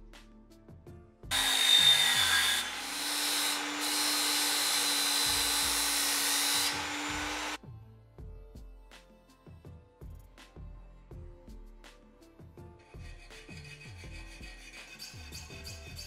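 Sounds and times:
angle grinder grinding steel: 1.3s - 7.6s.

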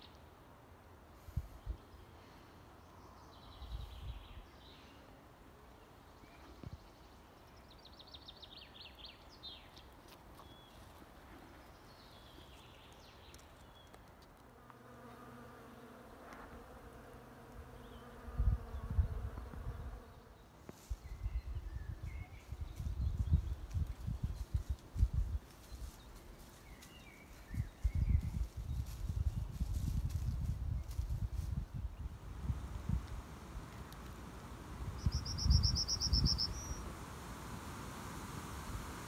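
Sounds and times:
bee buzzing: 14.5s - 20.4s
low rumbling buffets on microphone: 21.0s - 25.4s, 27.5s - 39.0s
bird trilling: 35.0s - 36.8s.

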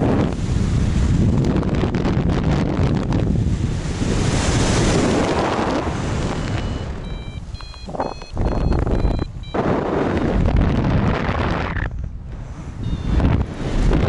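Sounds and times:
wind rushing over microphone: 0.0s - 14.0s
variometer high beeps: 6.2s - 9.8s, 12.8s - 13.2s.

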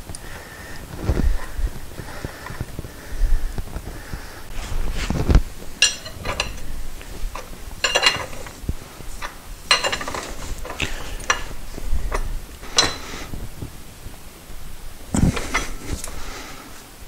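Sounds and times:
metallic clinks and rattles: 5.8s - 13.2s.

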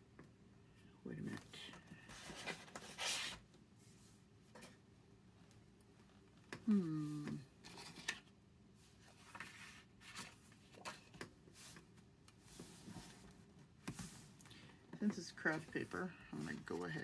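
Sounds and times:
woman humming hmm: 6.6s - 7.5s
paper rustling: 8.9s - 11.9s.

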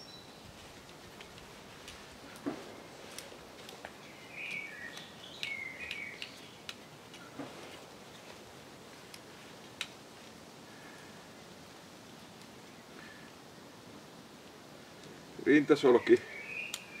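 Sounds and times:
bird chirps: 0.0s - 0.5s, 4.0s - 7.4s, 15.9s - 17.0s.

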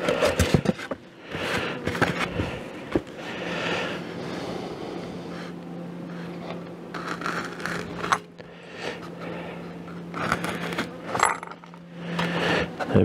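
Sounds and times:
steady low hum: 0.0s - 13.0s
foam panels scraping and rustling: 6.9s - 8.3s.

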